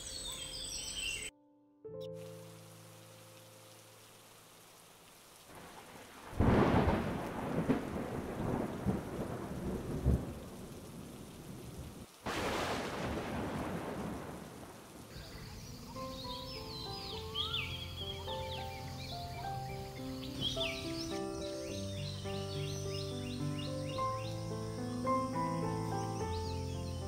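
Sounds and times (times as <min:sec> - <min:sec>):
steady rain: 0:02.1 - 0:27.0
thunder rumbling: 0:05.5 - 0:15.5.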